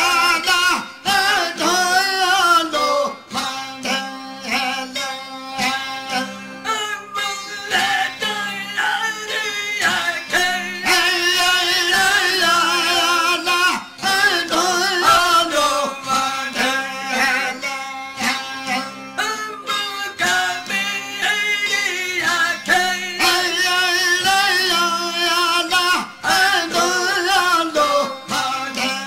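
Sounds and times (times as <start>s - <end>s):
man singing with vibrato: 0.0s - 29.0s
plucked strings: 0.0s - 29.0s.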